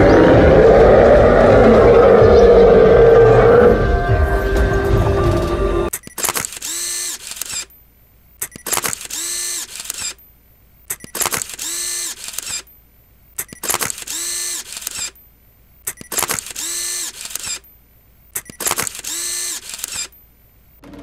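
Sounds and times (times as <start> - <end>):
camera shutter click: 5.9 - 7.8, 8.4 - 10.3, 10.9 - 12.7, 13.4 - 15.2, 15.9 - 17.7, 18.3 - 20.2
film winding motor whir: 6.0 - 7.8, 8.4 - 10.3, 10.9 - 12.8, 13.4 - 15.2, 15.9 - 17.8, 18.4 - 21.0.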